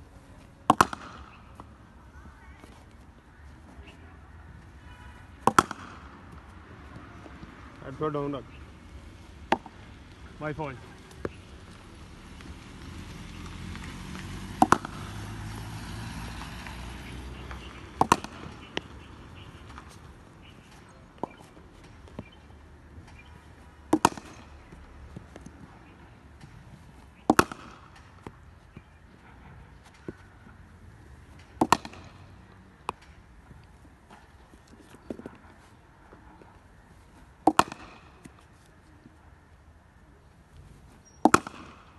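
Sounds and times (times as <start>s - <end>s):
cricket bat hitting ball: 0.6s - 1.6s, 5.4s - 6.4s, 9.4s - 9.9s, 14.4s - 15.2s, 16.4s - 19.0s, 19.6s - 22.4s, 23.1s - 25.8s, 26.4s - 30.3s, 31.3s - 33.2s, 37.4s - 38.4s, 41.2s - 41.9s.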